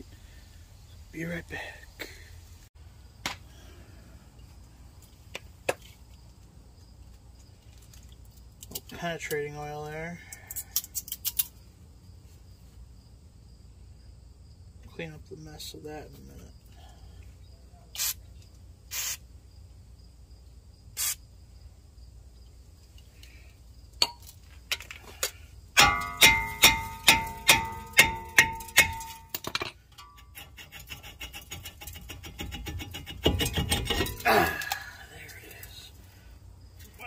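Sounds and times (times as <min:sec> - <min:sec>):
aerosol spray hissing: 0:18.9 - 0:19.2, 0:21.0 - 0:21.2
metal strikes on brake rotor: 0:25.8 - 0:30.5, 0:31.7 - 0:34.3
metal scraping and rattling: 0:25.8 - 0:34.7.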